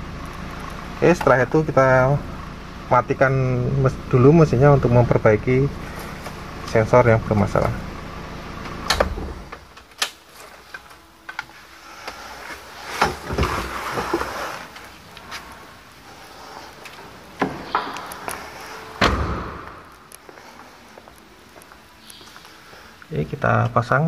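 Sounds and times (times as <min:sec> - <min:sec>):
car door opening and shutting: 0:08.6 - 0:15.7, 0:16.8 - 0:20.3
rustling: 0:09.6 - 0:23.1.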